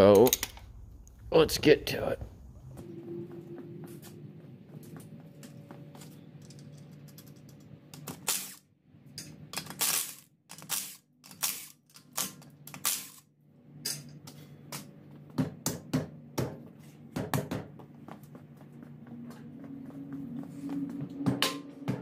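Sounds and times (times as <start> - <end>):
faint steady hum: 0.0 - 8.2.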